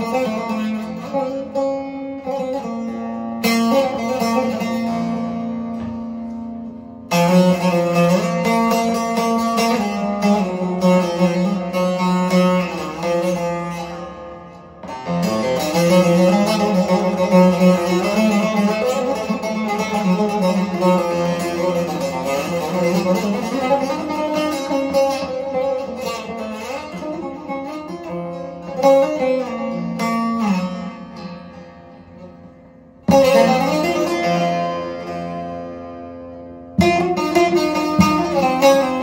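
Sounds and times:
plucked long-necked lute: 0.0s - 39.0s.

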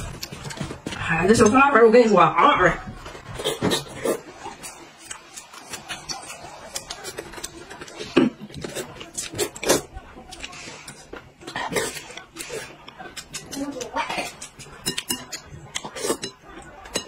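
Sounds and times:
slurping noodles: 3.3s - 14.8s.

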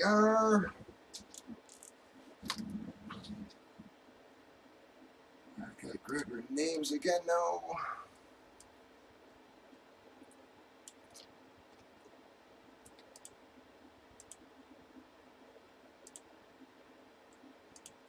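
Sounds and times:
faint steady hum: 0.0s - 18.0s
mouse and keyboard clicks: 1.2s - 3.3s, 12.8s - 13.4s, 14.2s - 14.5s, 16.0s - 16.3s, 17.3s - 18.0s.

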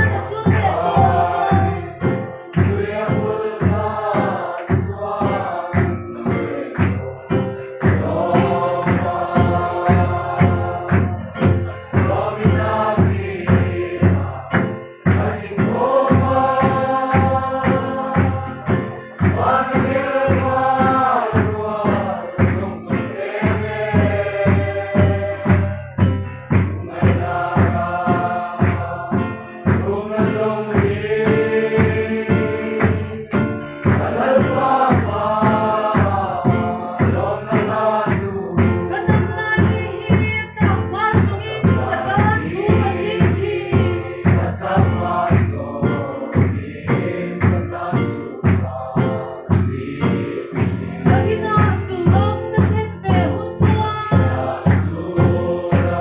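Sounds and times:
group singing a hymn: 0.0s - 56.0s
guitar: 0.0s - 56.0s
steady beat: 0.0s - 56.0s.

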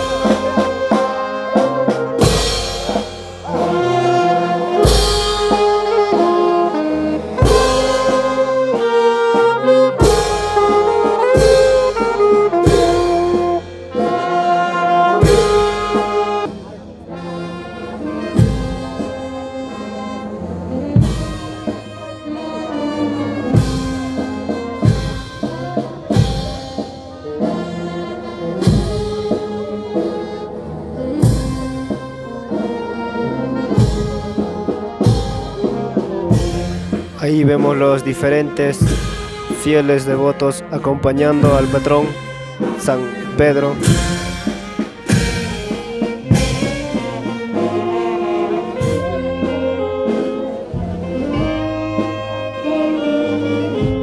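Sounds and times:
drum strokes: 0.0s - 17.0s, 18.2s - 19.4s, 21.0s - 22.0s, 23.4s - 27.1s, 33.6s - 40.2s, 40.9s - 52.8s
brass band playing: 0.0s - 54.0s.

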